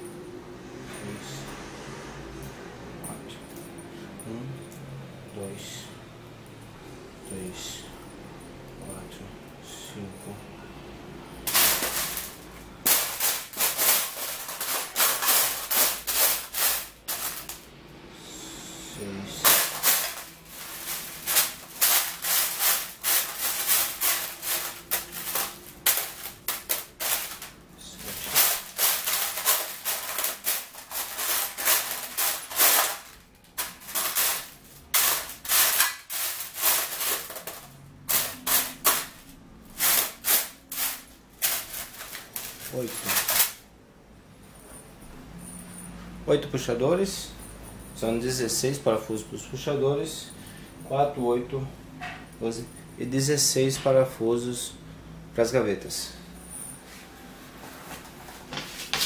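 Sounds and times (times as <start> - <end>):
screws clinking in metal tray: 11.5 - 17.6, 19.3 - 43.6.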